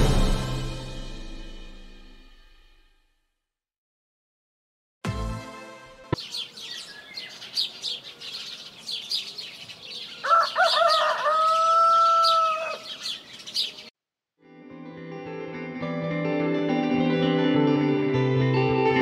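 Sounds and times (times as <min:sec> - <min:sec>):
small birds chirping: 0:06.1 - 0:13.9
rooster crowing: 0:10.0 - 0:13.2.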